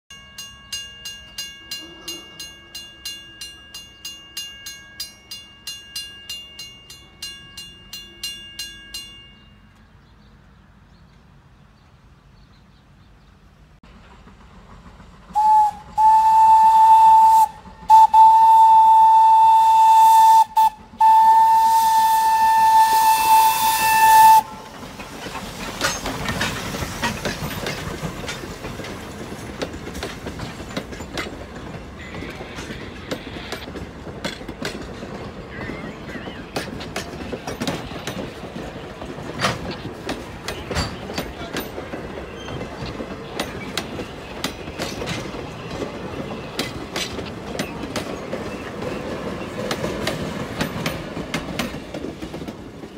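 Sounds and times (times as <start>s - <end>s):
railroad crossing bell ringing: 0.1s - 9.9s
train wheels clattering on rails: 13.8s - 52.9s
steam locomotive whistle: 15.3s - 24.8s.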